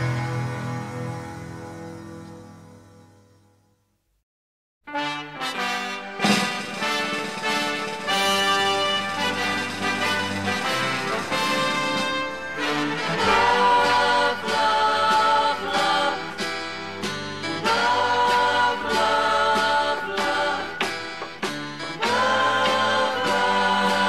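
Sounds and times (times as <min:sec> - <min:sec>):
instrumental music: 0:04.9 - 0:24.0
voices singing long notes: 0:06.9 - 0:24.0.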